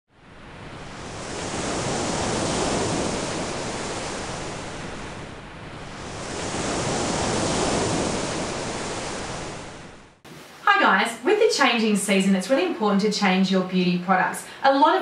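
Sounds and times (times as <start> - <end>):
ocean waves: 0.1 - 11.5, 14.4 - 15.0.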